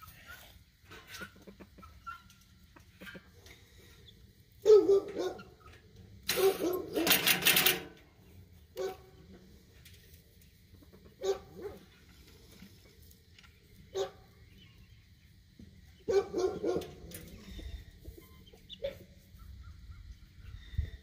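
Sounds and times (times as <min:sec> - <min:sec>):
dog barking: 0:04.6 - 0:05.5, 0:06.4 - 0:07.1, 0:08.8 - 0:09.1, 0:11.2 - 0:11.8, 0:13.9 - 0:14.2, 0:16.1 - 0:17.0.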